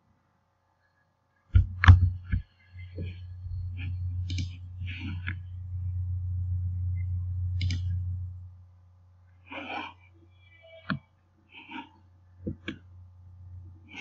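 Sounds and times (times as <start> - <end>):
low electrical hum: 0.0 - 14.0
sharp click: 7.6 - 8.0.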